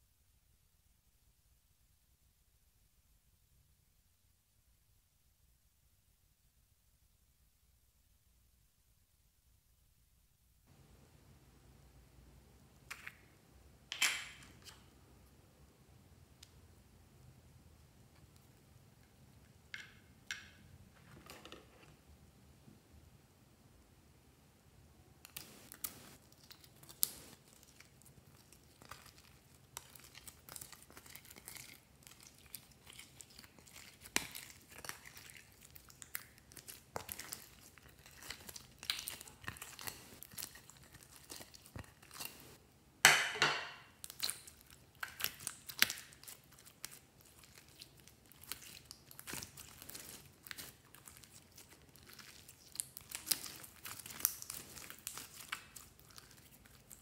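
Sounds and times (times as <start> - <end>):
slime clicking and squelching: 25.3 - 42.6, 43.9 - 57.0.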